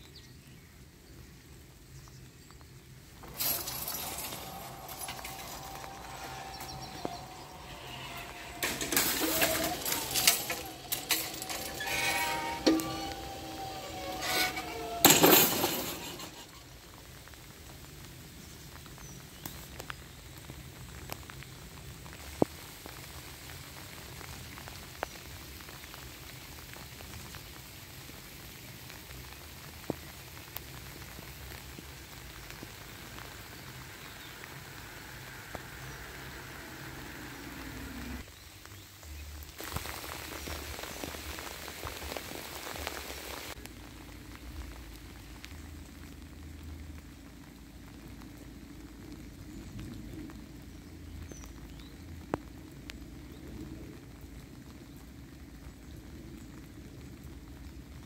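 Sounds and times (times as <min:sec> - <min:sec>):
light rain hiss: 0:00.0 - 0:58.0
loud burst of noise: 0:03.2 - 0:17.0.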